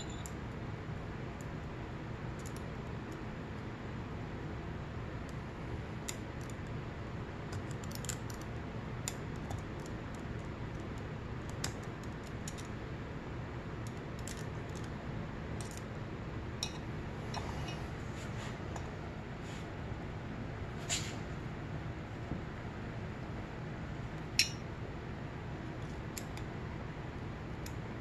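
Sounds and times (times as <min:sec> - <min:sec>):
low background hum: 0:00.0 - 0:28.0
metallic clicks and taps of tools: 0:10.7 - 0:12.7.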